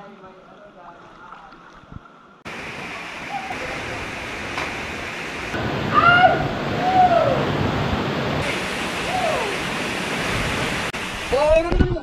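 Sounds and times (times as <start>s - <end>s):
waterfall rushing into pool: 2.5s - 12.0s.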